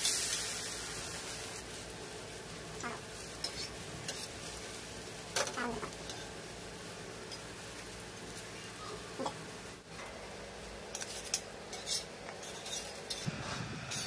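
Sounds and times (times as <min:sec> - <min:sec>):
omelette sizzling on a griddle: 0:00.0 - 0:09.9.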